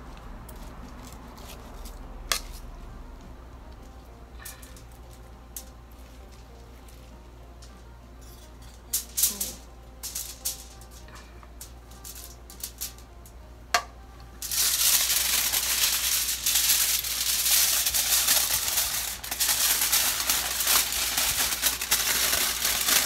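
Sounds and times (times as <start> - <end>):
aluminium foil crinkling: 3.8 - 13.2, 14.4 - 23.0.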